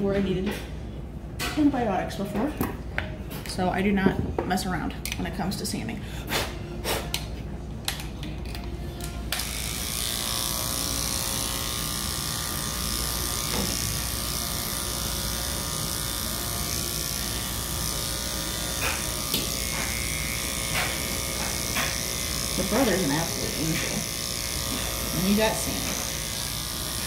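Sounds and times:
electric clippers running: 0:09.0 - 0:27.0.

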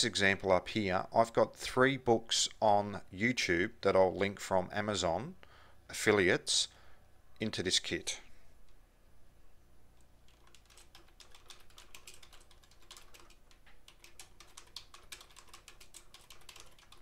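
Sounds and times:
typing on keyboard: 0:10.2 - 0:17.0.

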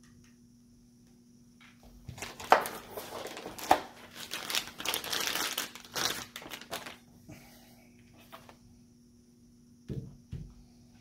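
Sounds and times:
plastic bag crinkling: 0:02.1 - 0:07.1.

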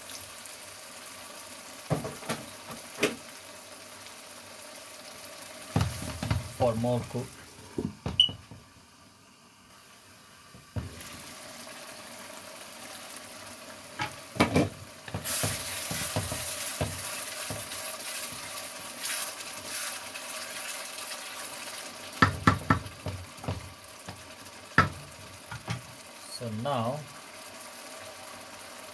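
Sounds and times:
sauce simmering and bubbling: 0:00.0 - 0:28.9
wooden spatula scraping a wok: 0:15.1 - 0:20.8.

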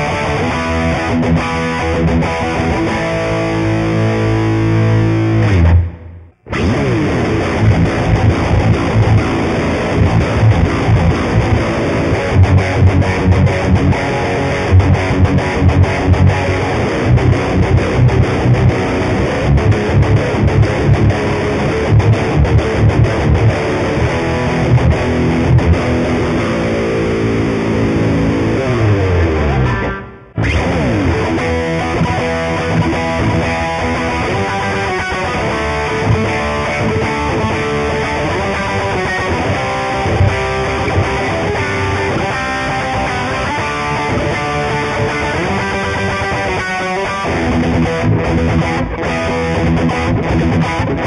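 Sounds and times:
electric guitar riffs: 0:00.0 - 0:51.0.

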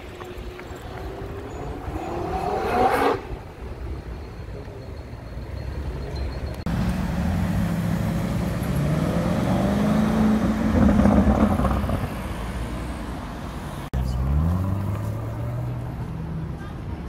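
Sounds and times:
car engine accelerating: 0:06.7 - 0:13.1, 0:14.0 - 0:16.3.

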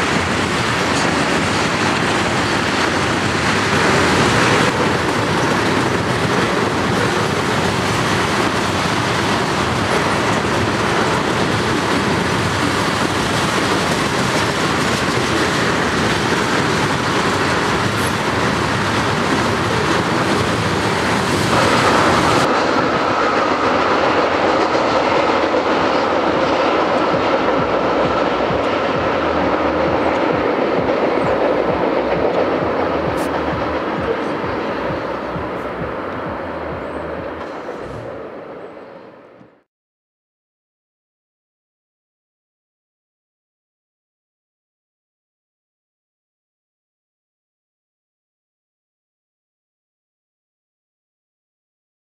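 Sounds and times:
train wheels rushing on track: 0:00.0 - 0:39.7
high-pitched tone: 0:26.6 - 0:38.5.

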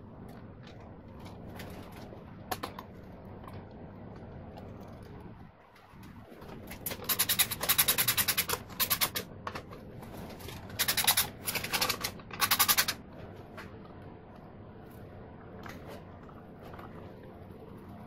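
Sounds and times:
socket ratchet clicking: 0:06.9 - 0:09.2, 0:10.8 - 0:13.0.

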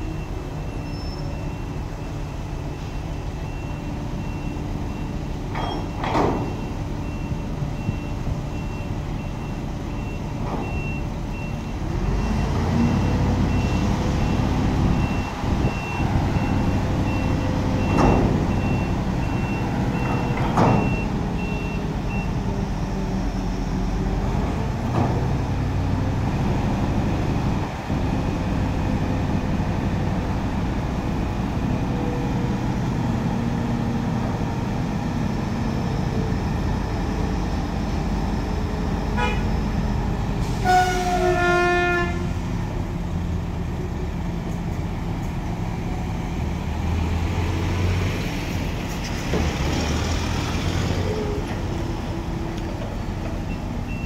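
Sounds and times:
reversing alarm beeping: 0:00.0 - 0:22.9
heavy diesel engines running: 0:00.0 - 0:54.0
vehicle horn: 0:39.2 - 0:39.5, 0:40.6 - 0:42.4.

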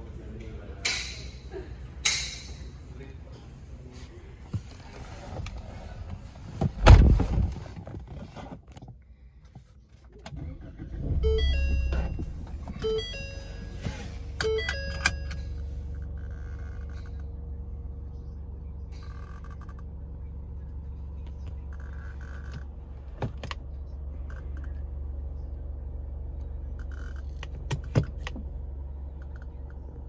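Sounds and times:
car engine starting and idling: 0:00.0 - 0:30.0
dashboard chime: 0:11.2 - 0:15.5.

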